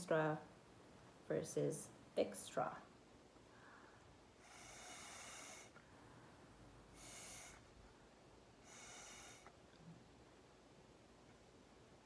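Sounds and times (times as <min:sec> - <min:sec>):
breath puffs through a straw: 0:04.4 - 0:05.8, 0:06.9 - 0:07.7, 0:08.6 - 0:09.6.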